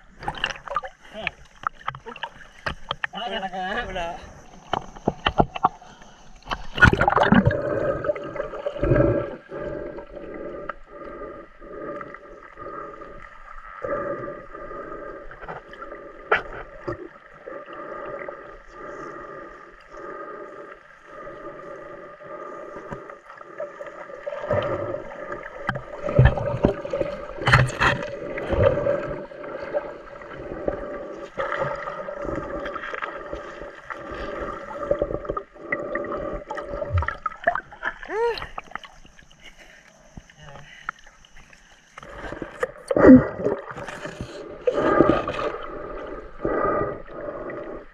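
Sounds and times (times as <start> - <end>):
splash and rush of water: 0.0 - 3.1, 3.8 - 9.5, 23.0 - 35.6, 40.8 - 47.9
swishing of water underwater: 0.0 - 47.9
bubbling bursts: 6.5 - 11.0.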